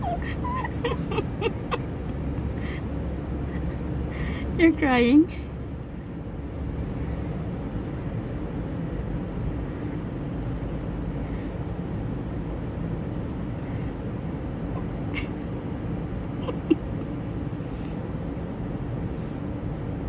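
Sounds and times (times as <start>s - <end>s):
small dog whimpering: 0.0s - 1.5s.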